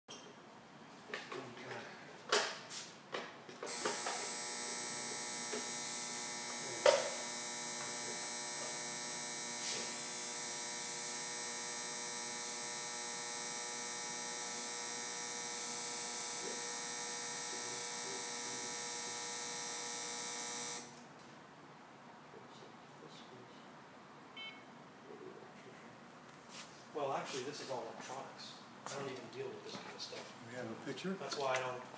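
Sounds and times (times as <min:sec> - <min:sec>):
x-ray unit electric hum: 0:03.7 - 0:21.0.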